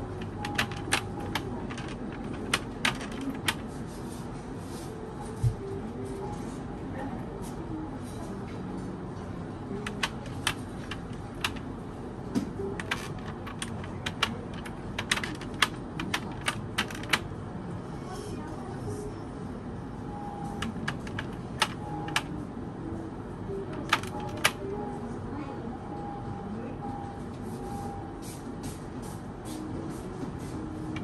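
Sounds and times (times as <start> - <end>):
steady background noise: 0.0 - 31.0.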